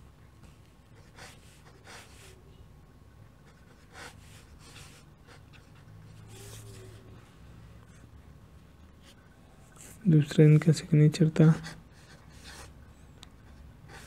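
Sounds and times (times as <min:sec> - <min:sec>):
faint low hum: 0:00.0 - 0:14.0
pen nib scratching on paper: 0:03.4 - 0:07.0.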